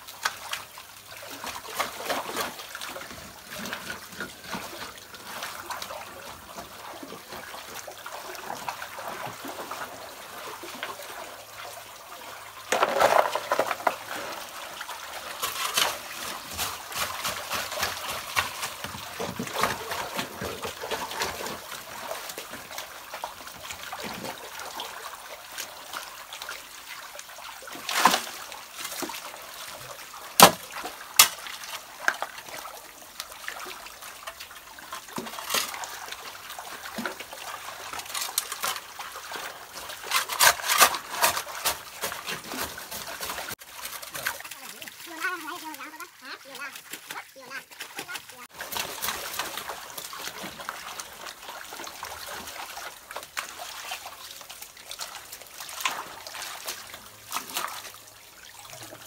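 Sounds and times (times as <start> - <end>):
muddy water trickling: 0.0 - 59.0
hoe scraping through gravel and mud: 12.7 - 14.5, 39.6 - 42.8.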